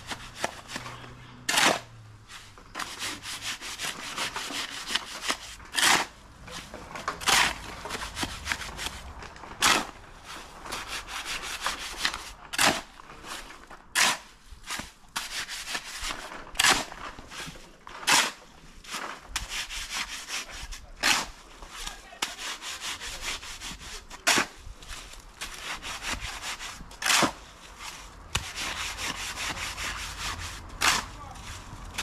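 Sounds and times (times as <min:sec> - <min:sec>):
shovel scraping over gravel: 0:00.0 - 0:32.0.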